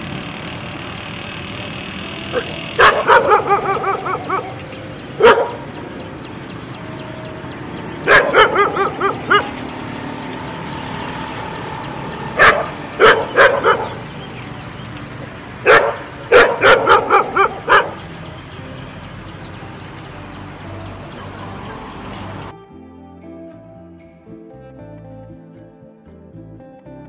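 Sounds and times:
dog barking sharply: 2.4 - 4.5, 5.2 - 5.6, 8.1 - 9.5, 15.6 - 18.0.

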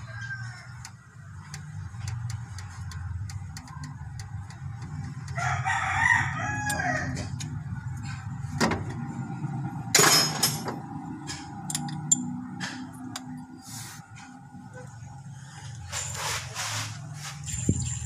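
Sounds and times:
rooster crowing: 0.0 - 0.9, 5.4 - 7.4
socket wrench clicks: 11.6 - 12.3.

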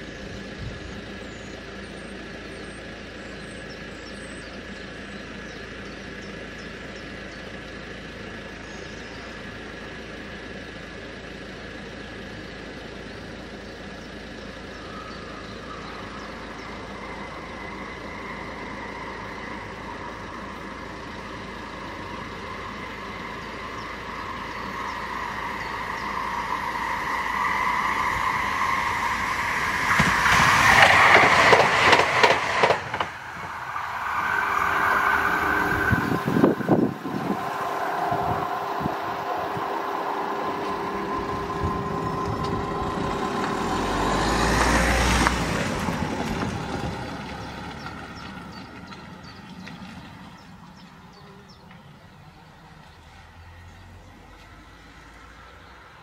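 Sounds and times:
electric tram whining past: 0.0 - 56.0
level crossing warning bells: 33.2 - 45.1.

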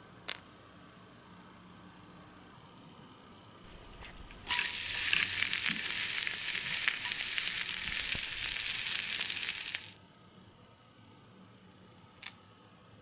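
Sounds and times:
batter sizzling on griddle: 3.7 - 10.0.

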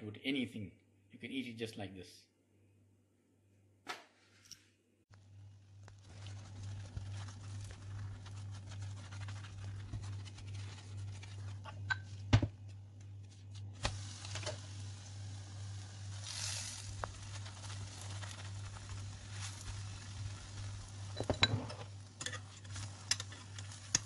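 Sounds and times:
roti sizzling in a frying pan: 5.6 - 12.0, 13.7 - 24.0.

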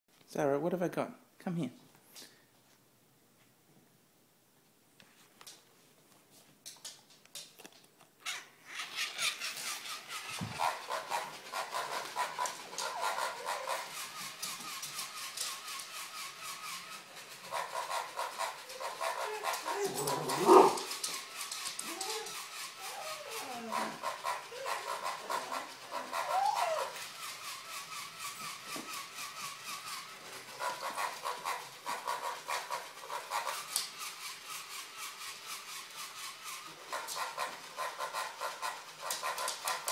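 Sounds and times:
toy mechanical clicking: 8.3 - 39.9
dog short vocal sounds: 18.8 - 20.9
dog barking: 19.1 - 20.9.

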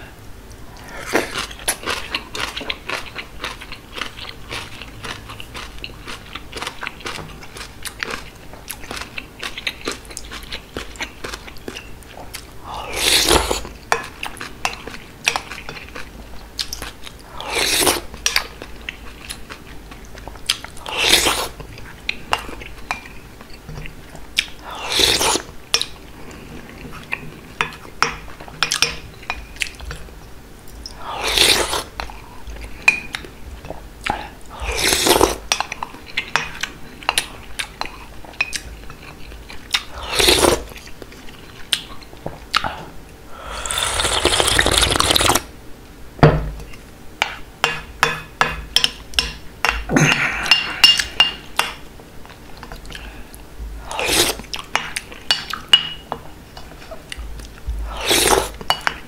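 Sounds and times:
soft chewing: 0.4 - 43.2
loud slurping from a spoon: 24.8 - 25.5, 31.2 - 31.9, 34.6 - 35.4, 40.0 - 40.7, 43.5 - 45.5, 53.9 - 54.4, 57.9 - 58.6.

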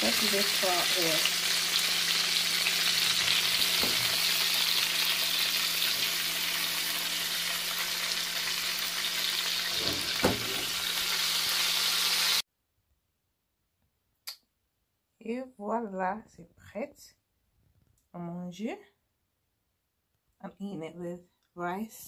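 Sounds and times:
fish sizzling in frying pan: 0.0 - 12.4
knocks of pan or utensil: 3.8 - 4.1, 9.8 - 10.8.

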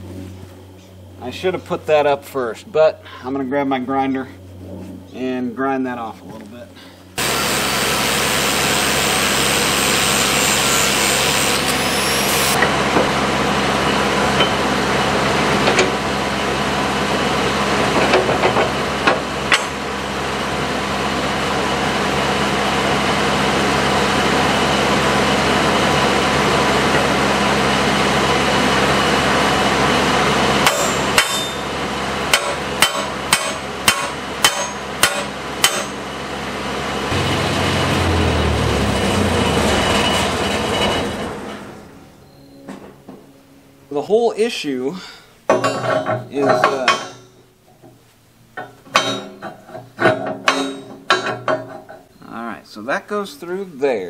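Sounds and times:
angle grinder grinding steel: 7.2 - 12.6.

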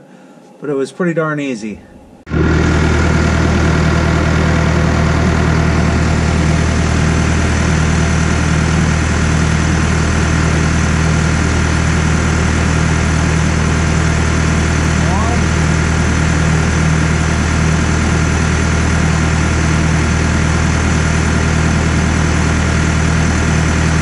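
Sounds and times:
diesel engine idling: 2.3 - 24.0.

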